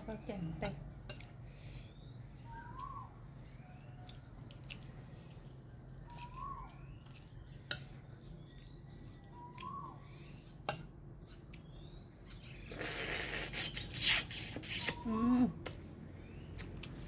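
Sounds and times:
bird chirping: 0:01.6 - 0:17.0
slurping and chewing: 0:12.6 - 0:15.0.

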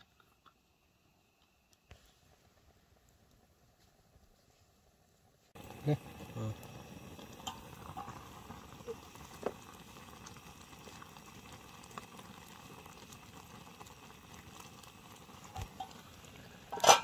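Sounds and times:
faint crackles: 0:00.0 - 0:17.0
pot of noodles boiling: 0:00.0 - 0:17.0.

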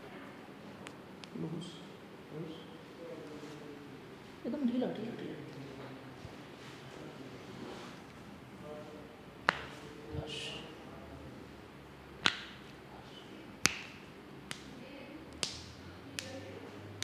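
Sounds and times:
finger joints cracking: 0:12.2 - 0:12.6.

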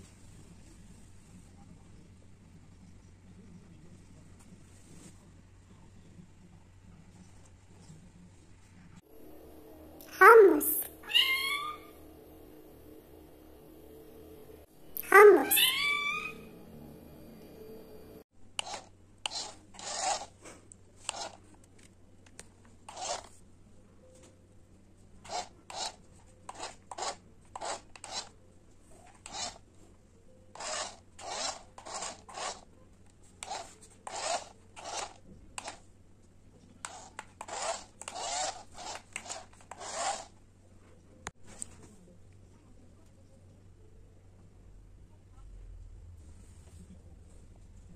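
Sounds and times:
faint low hum: 0:00.0 - 0:47.9
kitten claws scratching fabric: 0:18.6 - 0:21.6, 0:22.9 - 0:23.4, 0:25.2 - 0:28.4, 0:29.0 - 0:29.6, 0:30.6 - 0:32.7, 0:33.3 - 0:35.8, 0:36.8 - 0:40.4.

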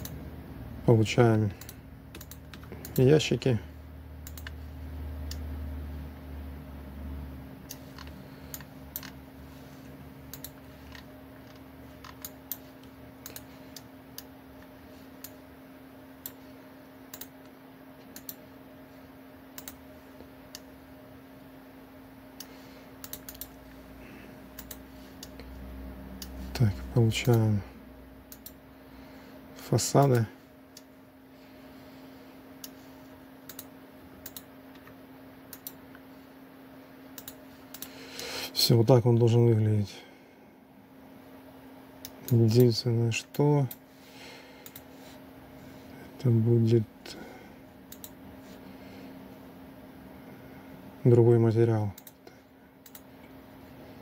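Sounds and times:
steady low hum: 0:00.0 - 0:54.0
computer mouse clicking: 0:01.6 - 0:03.1, 0:04.2 - 0:04.6, 0:07.6 - 0:09.2, 0:10.3 - 0:15.4, 0:17.1 - 0:18.4, 0:19.5 - 0:19.8, 0:22.4 - 0:23.6, 0:24.5 - 0:25.4, 0:28.3 - 0:28.6, 0:33.4 - 0:36.0, 0:37.2 - 0:38.0, 0:44.6 - 0:44.9, 0:47.9 - 0:48.2, 0:52.8 - 0:53.1.

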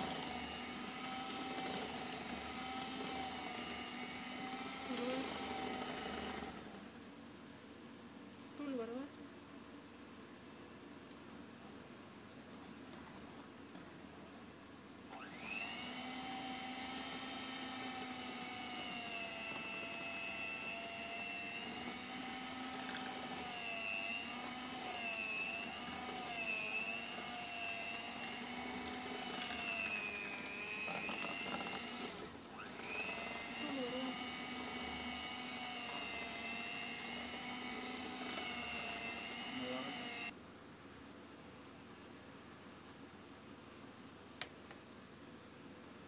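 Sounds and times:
electric hand mixer whine: 0:00.0 - 0:06.9, 0:15.1 - 0:40.4.

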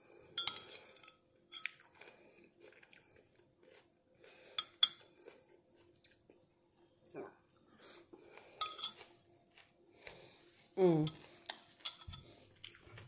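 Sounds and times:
utensil clinking on ceramic bowl: 0:00.4 - 0:01.8, 0:04.6 - 0:05.0, 0:08.6 - 0:09.0, 0:11.8 - 0:12.3.

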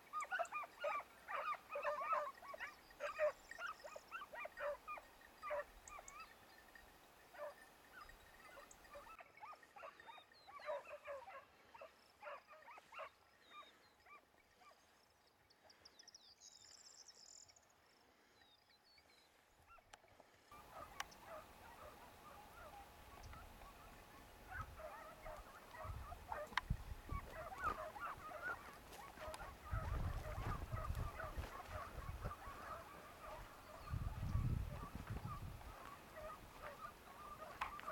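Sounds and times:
distant hounds yelping and baying: 0:00.0 - 0:15.9, 0:19.6 - 0:37.9.

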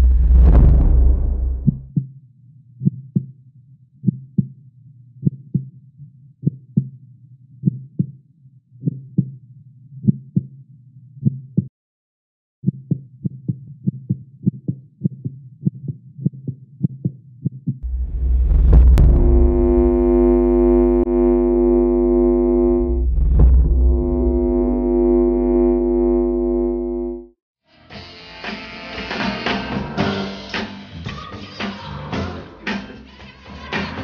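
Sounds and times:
heartbeat thumps: 0:00.0 - 0:02.1, 0:12.7 - 0:21.1, 0:22.8 - 0:24.6
low music drone: 0:17.9 - 0:20.1.

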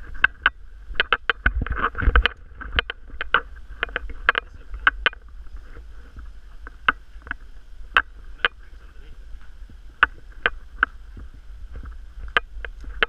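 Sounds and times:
low wind rumble: 0:00.0 - 0:13.0.

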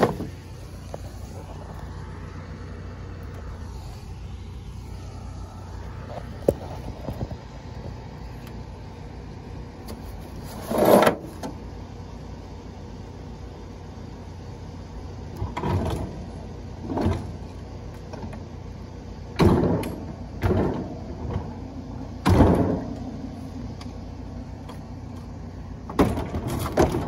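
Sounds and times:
refrigerator scraping and thumping: 0:00.0 - 0:01.8, 0:09.9 - 0:11.6, 0:16.8 - 0:17.4, 0:19.4 - 0:21.5, 0:25.9 - 0:27.0
steady low hum: 0:00.0 - 0:27.0.

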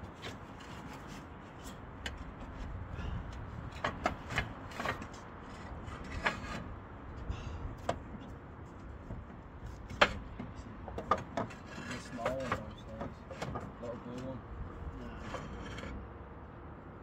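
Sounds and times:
knocks and taps of roofing work: 0:00.0 - 0:06.7, 0:07.8 - 0:14.2.

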